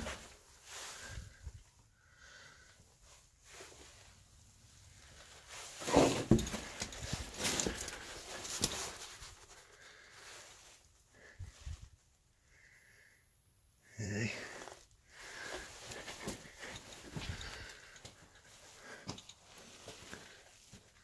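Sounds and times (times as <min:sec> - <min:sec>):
footsteps on loose rocks: 0:05.8 - 0:09.3.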